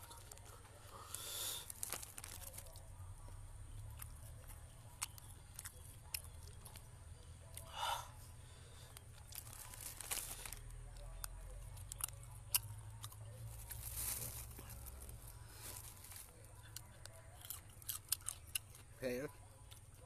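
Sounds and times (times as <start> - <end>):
chewing: 0.0 - 20.0
plastic bags crinkling: 1.6 - 2.8, 9.3 - 10.7, 13.6 - 16.3.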